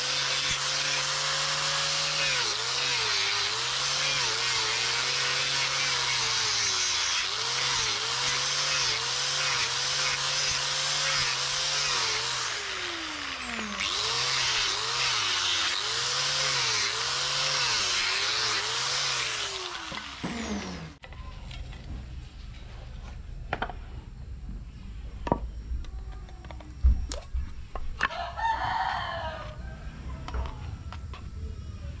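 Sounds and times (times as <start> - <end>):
electric power tool motor: 0.0 - 21.0.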